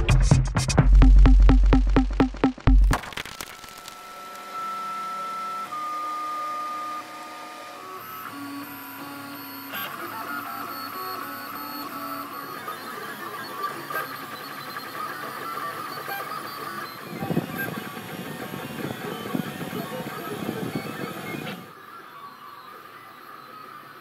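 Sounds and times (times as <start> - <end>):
stepper motors whining: 3.7 - 22.9.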